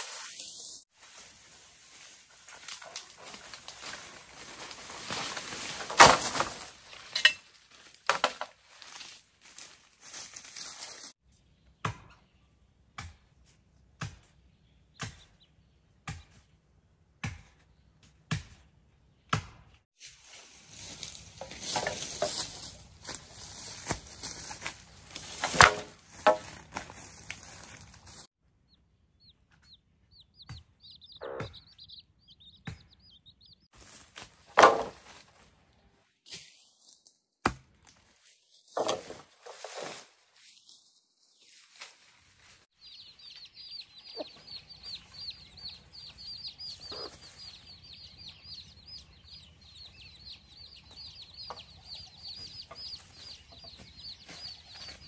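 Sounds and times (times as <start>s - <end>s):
rustling bamboo and dry leaves: 0.0s - 11.2s, 20.0s - 28.3s, 33.7s - 37.2s, 37.8s - 46.2s, 52.4s - 55.0s
bamboo being chopped: 5.8s - 6.7s, 13.0s - 14.4s, 15.0s - 15.4s, 17.2s - 18.6s, 19.3s - 19.7s, 23.8s - 27.4s, 34.2s - 35.3s, 37.4s - 38.0s
bird twittering: 29.2s - 33.7s, 42.8s - 55.0s.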